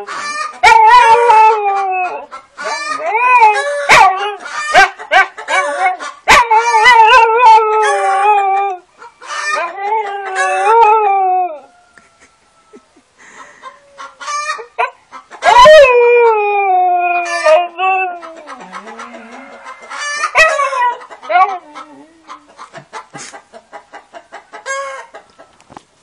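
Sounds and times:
chickens clucking: 0.0s - 11.1s, 11.7s - 15.7s, 17.1s - 25.8s
dog howling: 0.6s - 2.3s, 15.5s - 22.2s.

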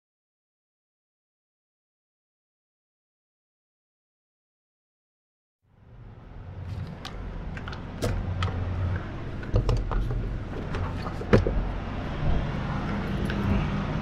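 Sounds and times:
sharp clicks and knocks: 6.7s - 11.8s.

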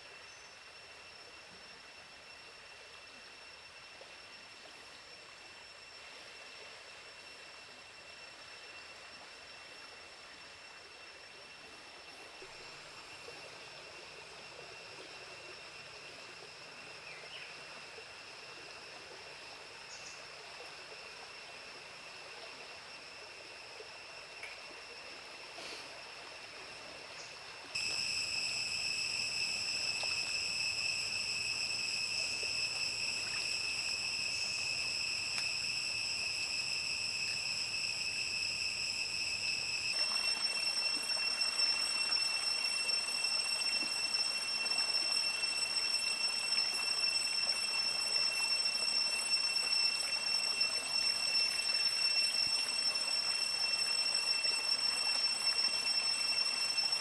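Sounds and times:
running stream: 0.0s - 57.0s
insects singing: 26.7s - 57.0s.

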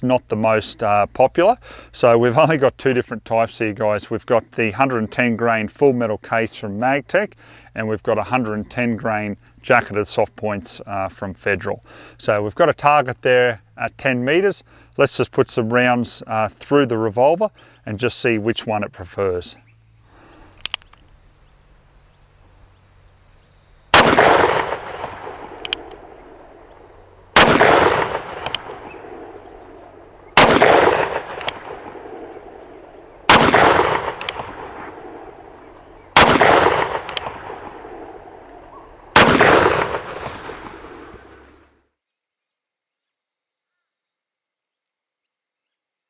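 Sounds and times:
revolver shots with echo: 24.0s - 26.5s, 27.4s - 41.4s
revolver hammer cocking click: 25.5s - 26.0s, 27.4s - 29.6s, 30.4s - 32.2s, 33.3s - 34.6s, 35.8s - 37.5s.

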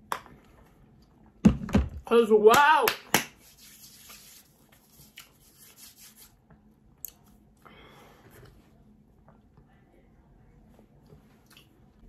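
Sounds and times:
hands rubbing together: 3.1s - 6.4s.

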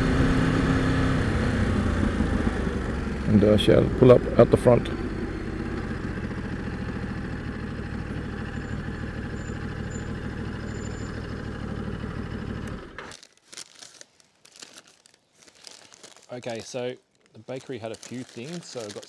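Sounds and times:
motorcycle engine idling: 0.0s - 13.0s
paper bag rustling: 13.0s - 19.0s.

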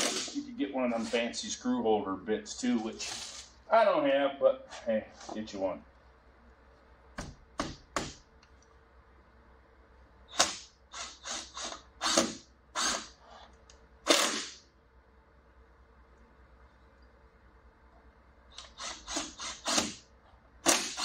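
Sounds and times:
cordless drill driving screws: 10.3s - 13.2s, 14.1s - 14.6s, 18.6s - 20.0s, 20.6s - 21.0s.

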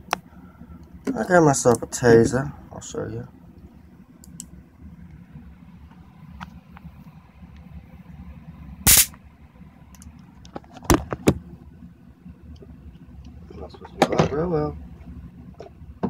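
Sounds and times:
stun gun crackling bursts: 8.9s - 9.1s.

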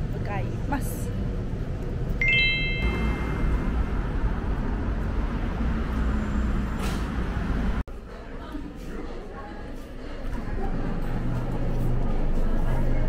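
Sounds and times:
street traffic noise: 0.0s - 13.0s
sparkle chime sound effect: 2.2s - 3.9s.

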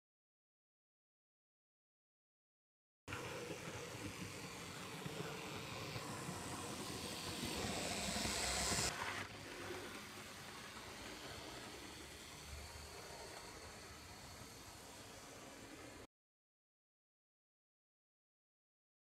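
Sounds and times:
wheels rattling on rails: 3.1s - 16.0s
model train motor whirring: 3.1s - 16.1s.

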